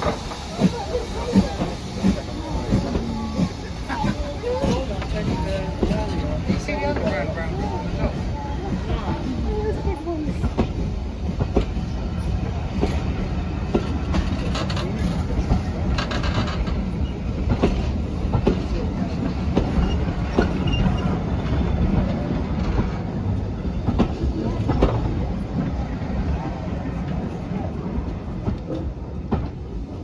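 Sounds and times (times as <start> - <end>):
train coaches rumbling past: 0.0 - 30.0
wheels clicking over rail joints: 13.7 - 21.2.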